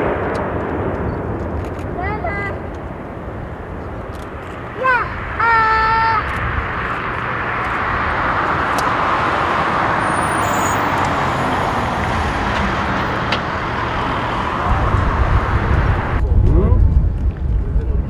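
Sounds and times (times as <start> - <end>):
jet engines rushing: 0.0 - 18.0.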